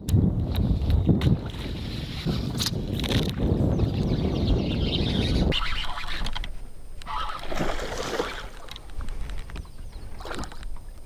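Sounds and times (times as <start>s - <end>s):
water sloshing around kayak: 7.1s - 11.0s.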